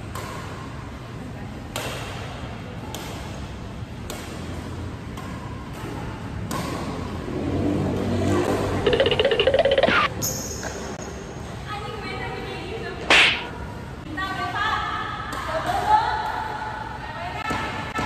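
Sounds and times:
badminton racket hitting shuttlecock: 13.0s - 13.5s.

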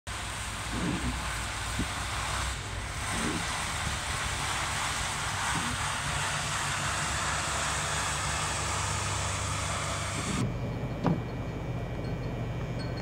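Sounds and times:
plow blade and tyres hissing on slush: 0.1s - 10.4s
low hum: 0.1s - 13.0s
truck engine running: 0.1s - 13.0s.

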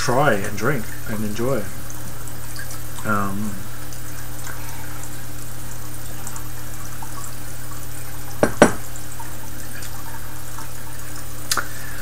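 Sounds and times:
sharp knocks: 8.4s - 8.8s.

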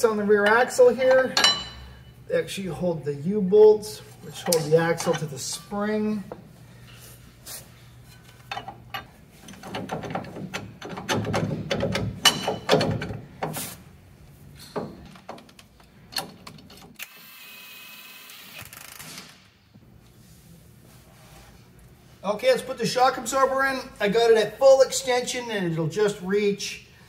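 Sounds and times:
steady hum: 0.0s - 15.1s
metal parts and tools clinking: 4.2s - 5.9s, 8.1s - 13.2s.

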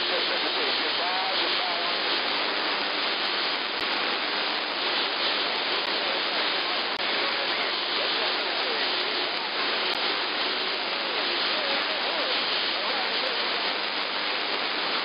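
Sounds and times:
faint garbled radio voices: 0.0s - 15.0s
radio static hiss: 0.0s - 15.0s.

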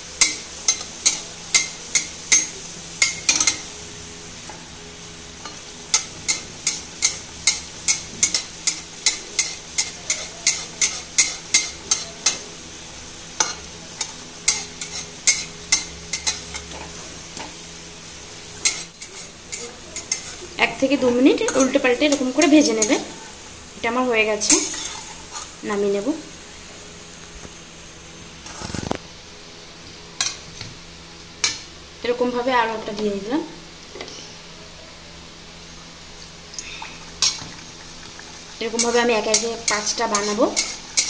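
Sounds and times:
oil sizzling: 0.0s - 41.0s
metal spatula scraping: 18.6s - 20.4s, 24.4s - 25.6s, 38.6s - 41.0s.

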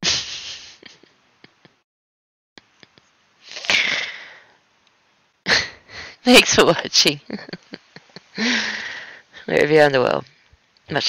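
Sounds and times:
sniff-like breath: 0.0s - 0.9s
person breathing: 3.5s - 4.6s, 5.8s - 6.2s, 8.3s - 9.5s.

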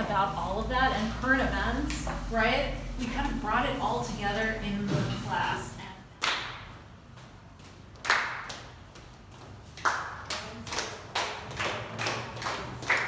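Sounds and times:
people clapping hands: 6.2s - 6.8s, 7.9s - 8.8s, 9.6s - 13.0s.

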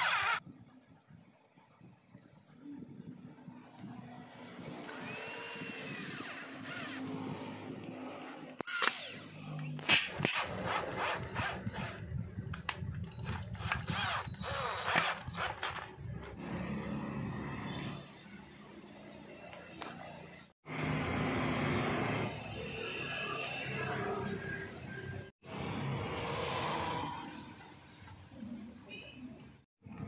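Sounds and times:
cordless drill motor running: 0.0s - 0.4s, 4.8s - 9.6s, 10.3s - 12.1s, 12.9s - 16.2s.

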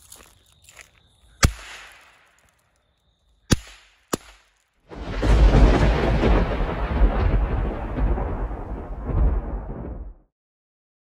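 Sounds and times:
bang snaps cracking on pavement: 1.4s - 2.6s, 3.5s - 4.7s
loud rumbling explosion-like noise: 4.9s - 10.2s.

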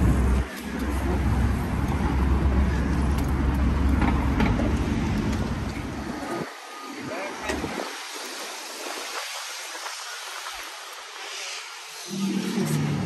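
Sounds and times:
road traffic rumbling: 0.0s - 6.5s, 12.0s - 13.0s.

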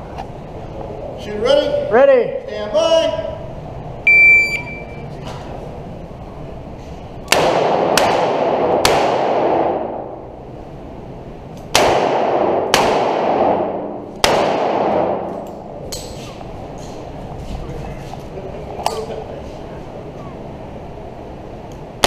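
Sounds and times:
handgun shots with echo: 7.3s - 10.0s, 11.7s - 16.1s.

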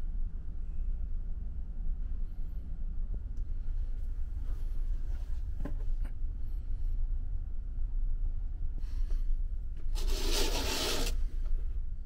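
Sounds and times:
curtain drawn along rail: 10.0s - 11.3s.

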